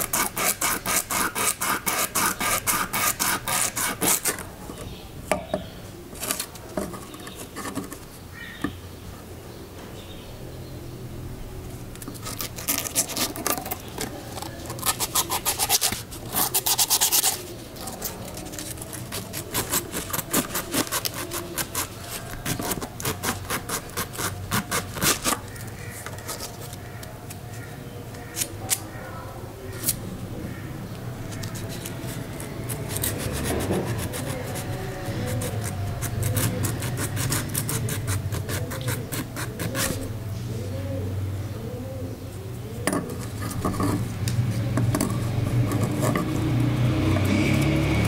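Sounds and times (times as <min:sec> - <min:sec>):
abrasive stick scraping metal blade: 0:00.0 - 0:04.4, 0:43.0 - 0:48.0.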